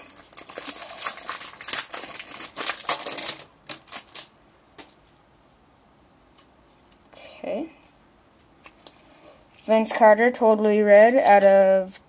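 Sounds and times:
wrapper crinkling: 0.0 - 5.0.

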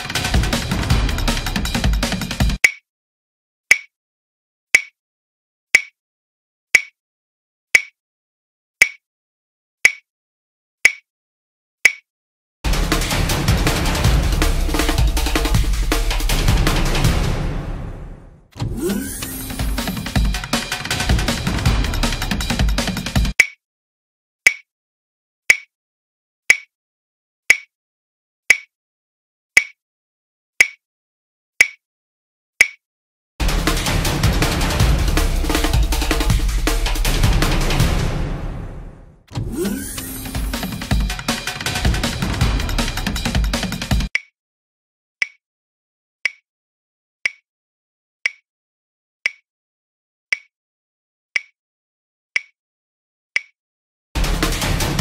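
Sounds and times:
drum-led music: 0.0 - 2.6, 12.7 - 23.4, 33.4 - 44.1, 54.2 - 55.0
countdown timer ticks: 0.0 - 2.8, 18.7 - 23.6, 39.6 - 44.3, 50.3 - 50.5, 51.4 - 51.6, 52.4 - 52.6, 53.4 - 53.6.

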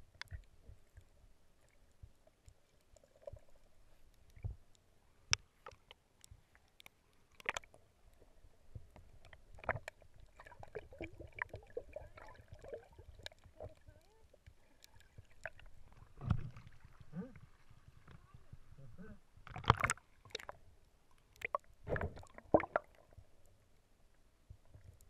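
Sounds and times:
underwater clicks and knocks: 8.7 - 13.9, 15.2 - 16.9, 19.4 - 20.6, 21.4 - 23.1
low underwater thump: 16.2 - 16.8, 21.8 - 22.8.

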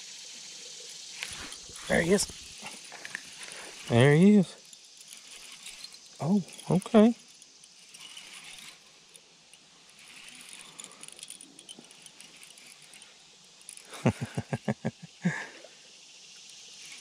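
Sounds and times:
insects: 0.0 - 17.0
fishing reel being cranked: 0.2 - 14.6, 16.2 - 17.0.

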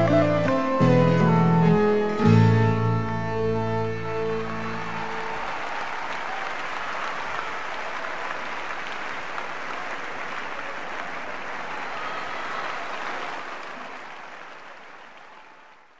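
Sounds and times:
audience applauding: 0.0 - 2.4, 3.2 - 15.9.

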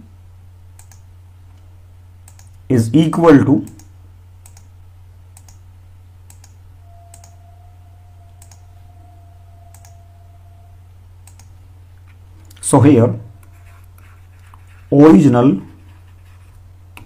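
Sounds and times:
low electrical hum: 0.0 - 17.0
computer mouse clicks: 0.8 - 1.6, 2.2 - 2.6, 3.6 - 4.7, 5.4 - 5.6, 6.3 - 7.4, 8.4 - 8.7, 9.7 - 10.0, 11.2 - 11.6
faint thin steady tone: 6.8 - 11.3.

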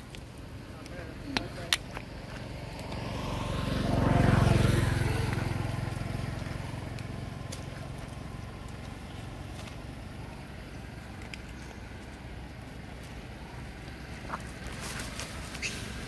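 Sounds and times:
vehicle driving past: 2.0 - 16.0.

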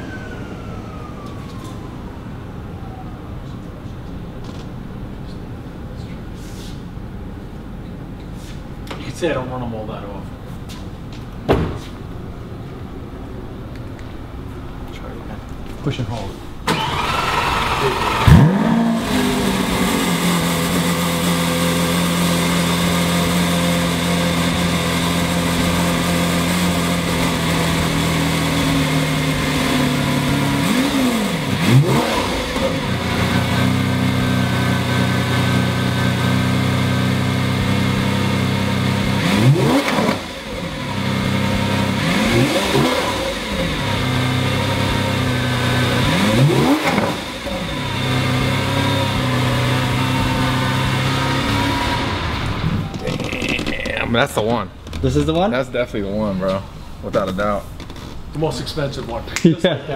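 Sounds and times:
car engine idling: 12.1 - 54.1
engine revving blips: 16.7 - 54.0.

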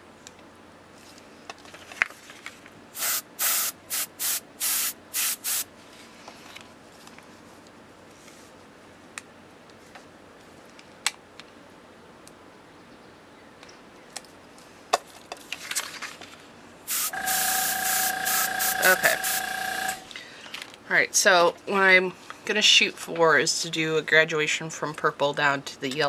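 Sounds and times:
airbrush spraying in hissing bursts: 3.0 - 5.7, 16.9 - 20.0.

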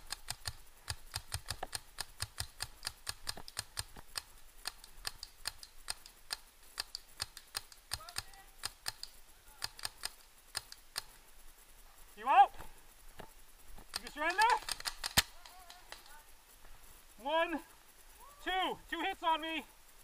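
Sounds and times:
paintball markers firing: 0.0 - 11.2, 13.8 - 16.2.

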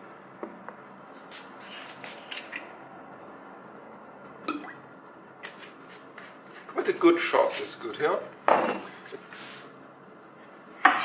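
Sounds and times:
glass bottle knocks and clinks: 8.5 - 8.8.

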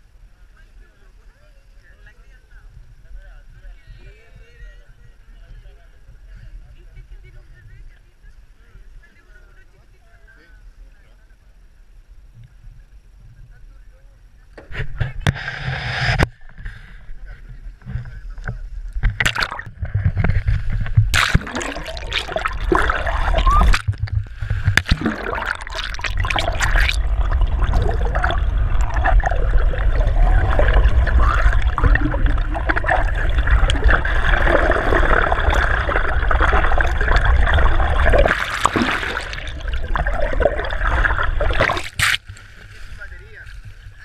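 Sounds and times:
underwater gurgling water: 18.9 - 44.0
water splashes: 19.0 - 44.0.

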